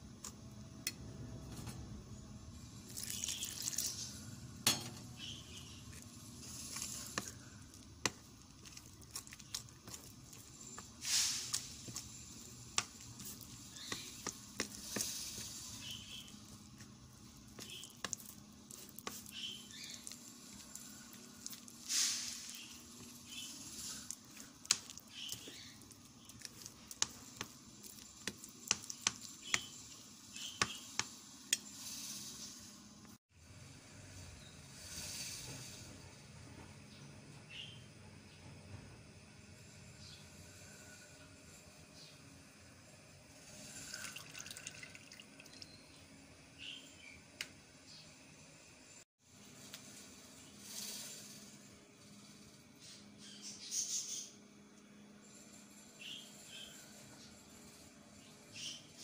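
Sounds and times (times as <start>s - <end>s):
wet scraping of batter: 5.2s - 30.8s.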